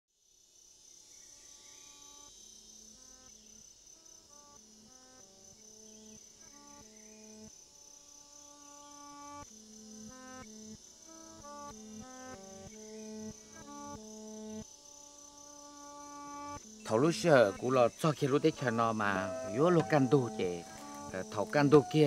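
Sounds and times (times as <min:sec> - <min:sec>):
insects droning: 0:00.2 - 0:22.0
slow melody of sustained notes: 0:08.5 - 0:22.0.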